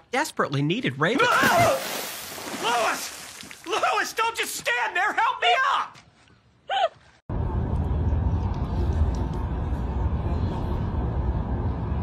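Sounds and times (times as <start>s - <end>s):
low outdoor background rumble: 7.3s - 12.0s.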